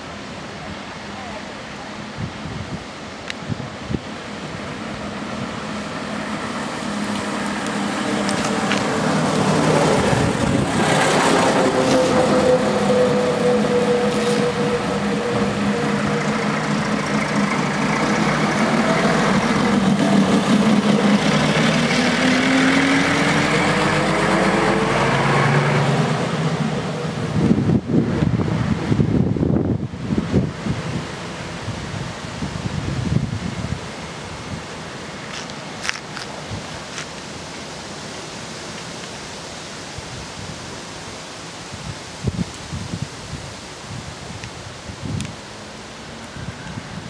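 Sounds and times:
diesel bus engine: 3.5s - 37.6s.

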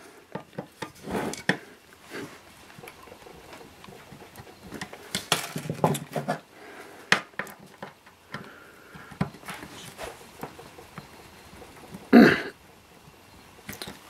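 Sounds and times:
clicks and taps of handled tools: 7.1s - 9.7s.

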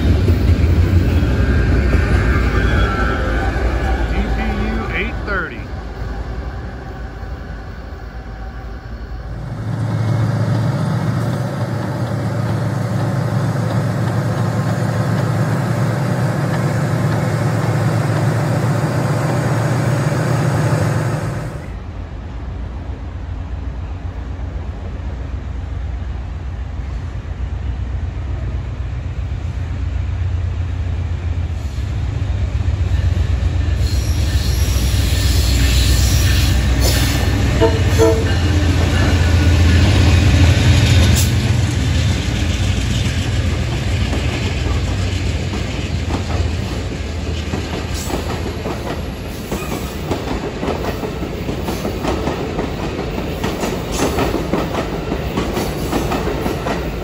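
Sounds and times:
diesel train rumble: 0.0s - 57.0s
wheels clicking over rail joints: 10.4s - 18.6s.

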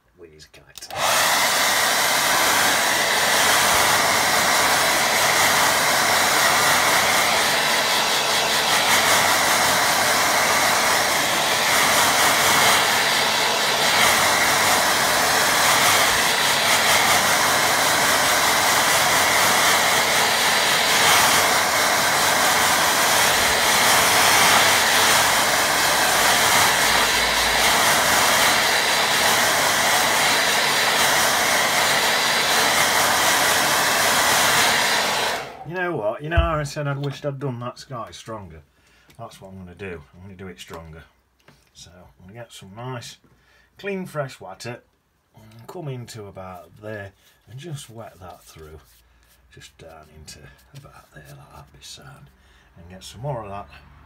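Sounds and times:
hair dryer running: 0.9s - 35.7s, 36.4s - 36.6s.

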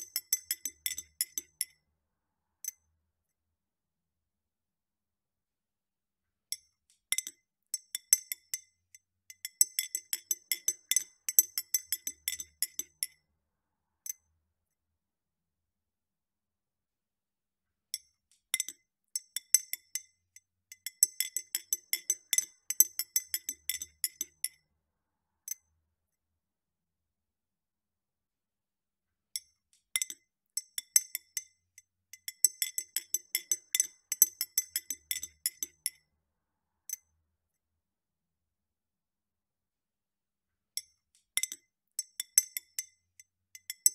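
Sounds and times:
spoon clinking against glass: 0.0s - 1.7s, 9.4s - 13.1s, 20.8s - 24.6s, 32.2s - 36.0s.

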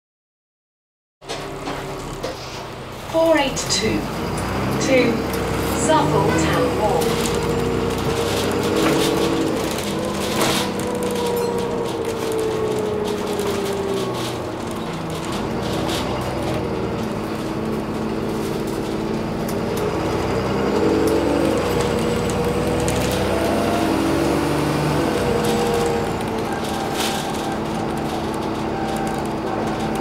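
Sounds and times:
bus engine running: 1.2s - 30.0s
body and fittings rattling: 4.1s - 30.0s.

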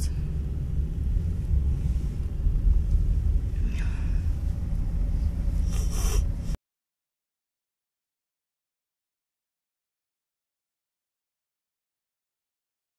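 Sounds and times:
car engine and road noise: 0.0s - 6.6s.

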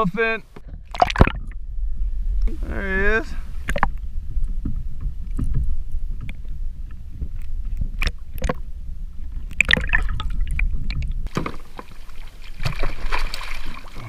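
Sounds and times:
muffled underwater water noise: 0.0s - 14.0s
water sloshing and splashing: 0.5s - 2.7s, 3.3s - 14.0s
sharp underwater clicks: 0.9s - 1.6s, 3.6s - 4.0s, 5.2s - 8.6s, 9.4s - 11.5s.

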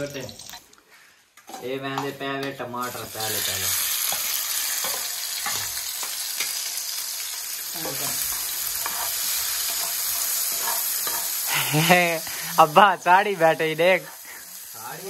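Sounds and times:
tomatoes sizzling in frying pan: 0.0s - 0.8s, 1.5s - 15.0s.

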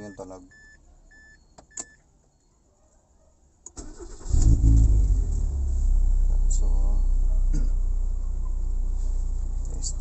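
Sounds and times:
car starter cranking: 3.7s - 5.5s
car engine idling: 3.8s - 10.0s.

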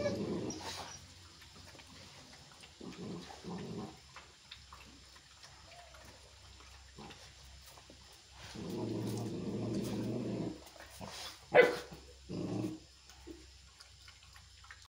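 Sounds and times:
dog growling: 0.0s - 1.0s, 2.4s - 4.1s, 8.4s - 12.9s
dog barking sharply: 11.5s - 11.9s.

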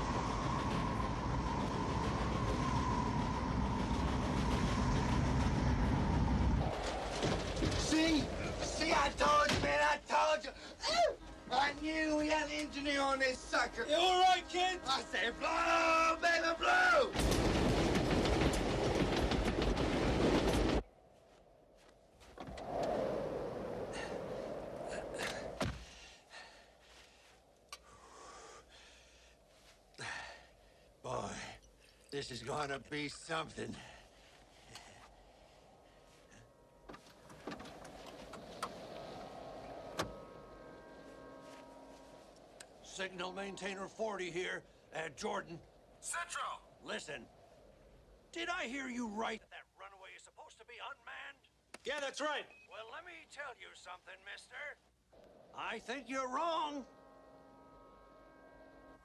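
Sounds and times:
diesel locomotives rumbling: 0.0s - 20.9s, 22.6s - 49.2s, 55.0s - 59.0s.

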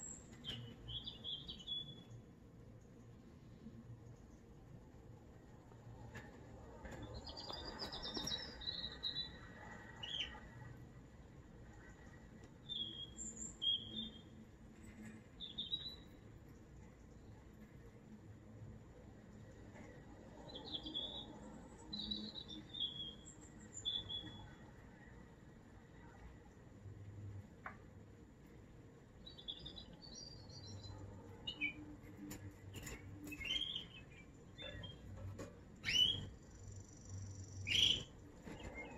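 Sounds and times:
canary singing: 0.0s - 2.1s, 7.2s - 10.6s, 12.6s - 14.4s, 15.4s - 16.1s, 20.5s - 24.6s, 29.2s - 31.8s, 32.7s - 38.9s.

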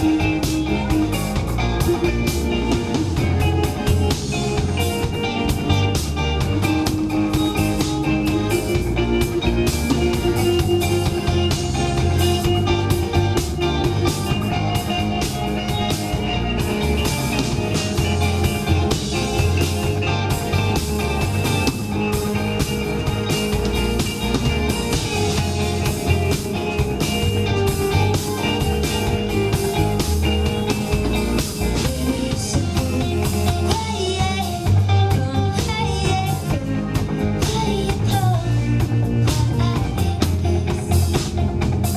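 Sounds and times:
bass guitar: 0.0s - 41.9s
drum kit beat: 0.0s - 41.9s
electric guitars: 0.0s - 41.9s.

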